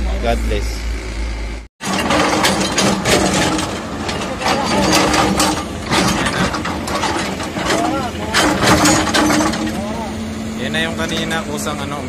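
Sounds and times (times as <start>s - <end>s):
excavator engine hum: 0.0s - 12.0s
hydraulic breaker hammering rock: 1.8s - 10.1s.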